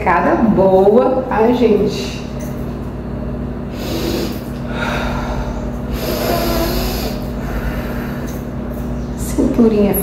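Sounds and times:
steady low hum: 0:00.0 - 0:10.0
woman breathing: 0:03.7 - 0:08.6.

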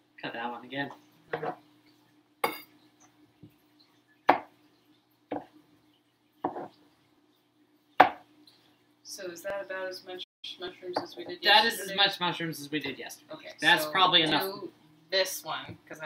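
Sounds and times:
knife knocking on cutting board: 0:06.4 - 0:06.7, 0:08.0 - 0:08.2.

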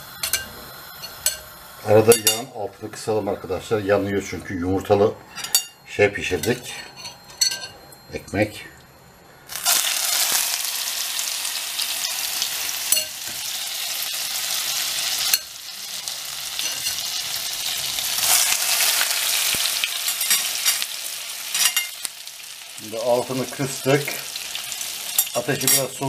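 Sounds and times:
bread sizzling in frying pan: 0:00.0 - 0:02.5, 0:09.5 - 0:26.0.

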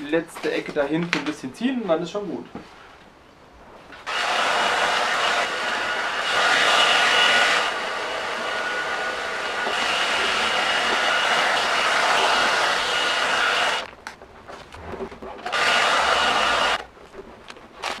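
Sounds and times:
heat gun blowing hiss: 0:04.0 - 0:13.9, 0:15.4 - 0:16.8.

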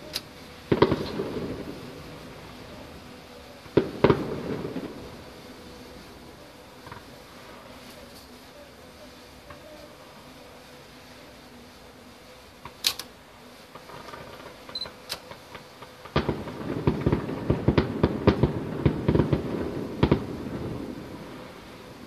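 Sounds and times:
distant fireworks bangs and crackle: 0:00.0 - 0:08.2, 0:13.6 - 0:22.0.

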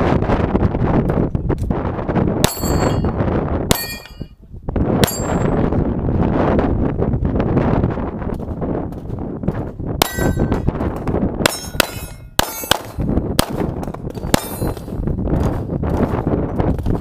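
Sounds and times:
steel target clanging: 0:02.4 - 0:04.3, 0:05.0 - 0:05.6, 0:10.0 - 0:10.7, 0:11.5 - 0:13.1, 0:14.1 - 0:15.0
pistol shots: 0:10.0 - 0:16.1.

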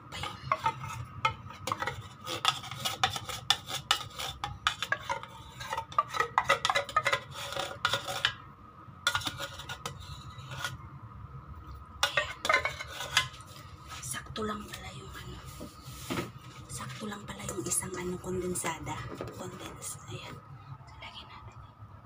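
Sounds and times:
can opener cutting metal can: 0:00.1 - 0:08.4, 0:09.1 - 0:10.8, 0:12.0 - 0:13.5.

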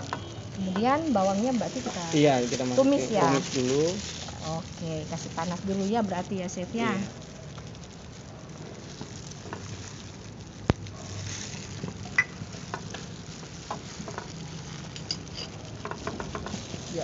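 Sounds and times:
butter sizzling in a pot: 0:00.0 - 0:17.0
wooden spatula stirring: 0:07.0 - 0:17.0.

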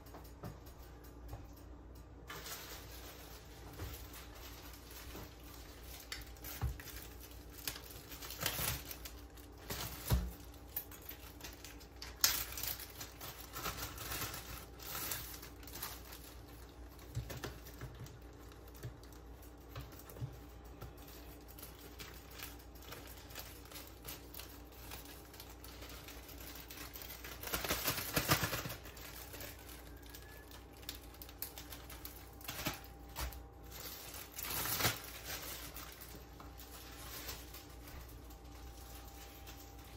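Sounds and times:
plastic packaging crinkling: 0:01.8 - 0:39.9.

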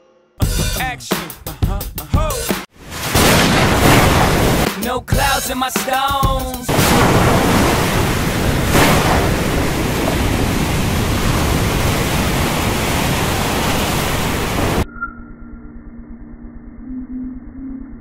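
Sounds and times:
heavy waves rushing: 0:02.8 - 0:04.7, 0:06.7 - 0:14.8.

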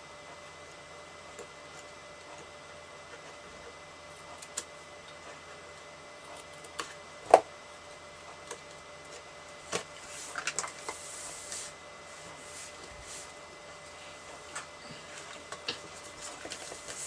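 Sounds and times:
card rustling and sliding: 0:10.0 - 0:13.4.

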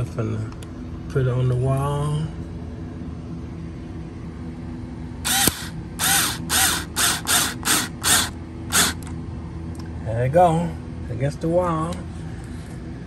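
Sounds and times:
power drill driving screw: 0:05.3 - 0:09.1.

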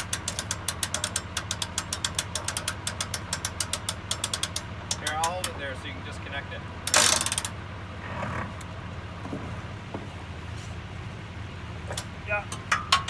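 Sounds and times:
mechanical rattle: 0:00.0 - 0:05.6, 0:06.8 - 0:07.6
winch ratchet clicking: 0:00.0 - 0:05.7, 0:06.8 - 0:07.6
outboard motors idling: 0:00.0 - 0:13.0.

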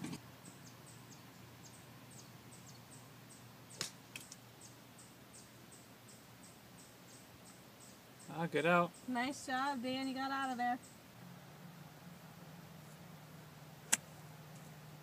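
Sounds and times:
golf club striking sand: 0:13.8 - 0:14.1.

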